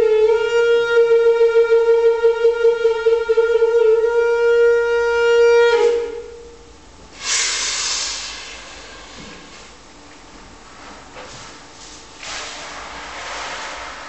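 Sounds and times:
small wind instrument note: 0.0 - 6.5
rush of hiss-like noise: 7.1 - 9.8.

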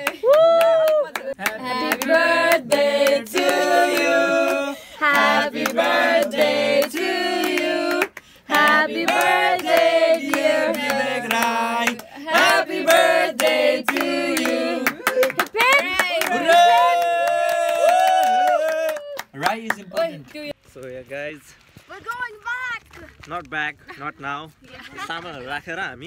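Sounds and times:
hands clapping: 0.0 - 4.6, 5.6 - 20.5
people singing: 1.4 - 15.1.

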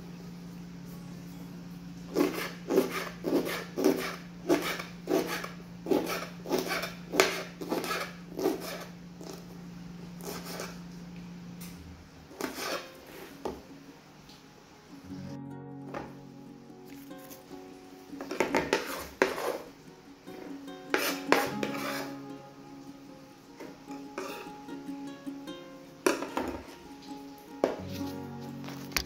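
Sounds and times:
knife chopping on cutting board: 2.2 - 8.9, 18.3 - 19.6.

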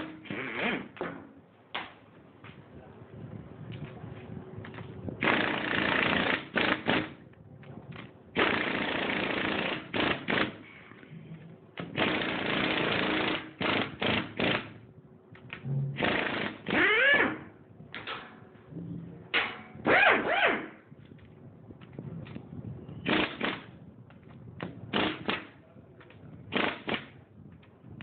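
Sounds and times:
pneumatic wrench tightening nuts: 0.0 - 0.9, 11.9 - 14.7, 16.0 - 17.4, 26.5 - 27.1.

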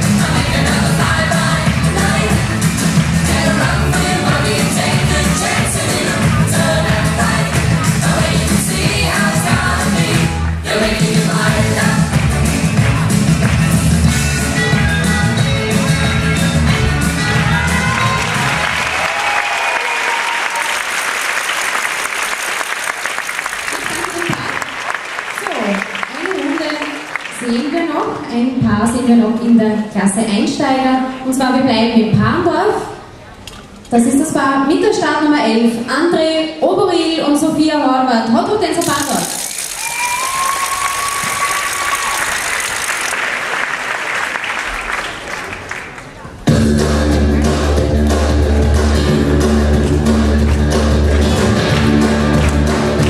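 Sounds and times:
rock and roll dance music: 0.0 - 19.0, 46.5 - 53.0
audience applause: 17.8 - 27.7, 39.0 - 46.4.

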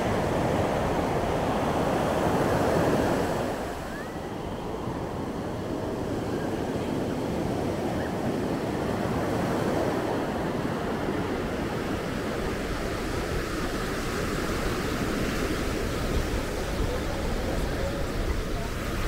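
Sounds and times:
ocean surf breaking on beach: 0.0 - 19.0.

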